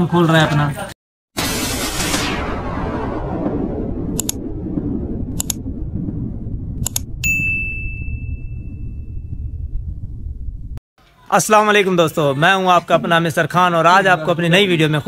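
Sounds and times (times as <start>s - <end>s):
burst of noise: 1.3s - 7.2s
low rumble: 1.4s - 10.8s
bell ding: 7.2s - 9.4s.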